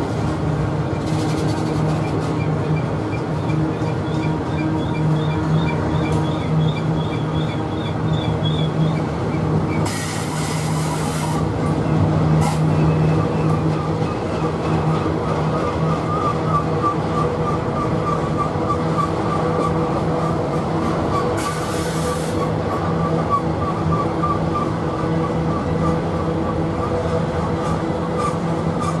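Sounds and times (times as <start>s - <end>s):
train wheels rumbling on rail: 0.0s - 29.0s
high wavering wheel squeal: 3.1s - 11.4s.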